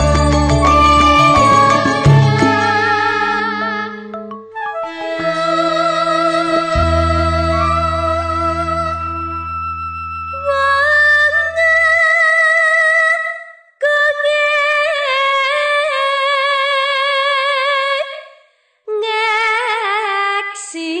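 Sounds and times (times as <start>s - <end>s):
woman singing solo: 0.0s - 4.0s, 4.8s - 9.0s
low instrument note: 0.0s - 5.6s.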